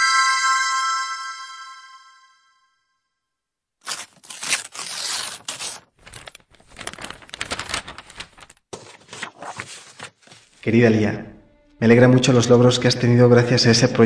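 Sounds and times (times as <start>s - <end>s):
paper rustling and crinkling: 3.8s - 10.6s.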